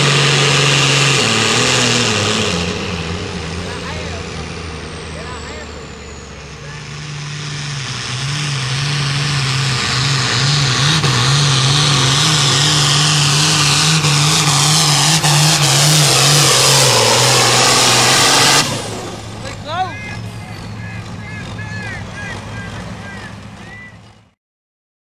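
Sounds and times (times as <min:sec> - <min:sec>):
tractor diesel engine at full throttle: 0:00.0 - 0:24.4.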